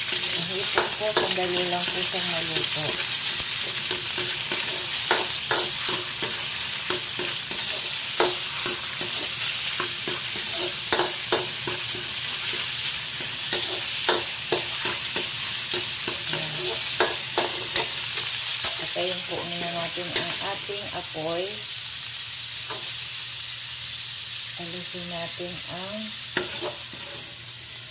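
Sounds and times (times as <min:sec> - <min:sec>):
shrimp sizzling in hot oil: 0:00.0 - 0:27.9
metal ladle scraping wok: 0:03.6 - 0:20.6, 0:26.3 - 0:27.9.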